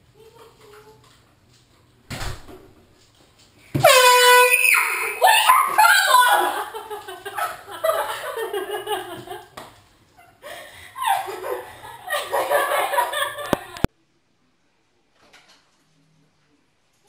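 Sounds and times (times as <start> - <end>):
girl laughing: 4.8 - 9.6, 10.2 - 13.9.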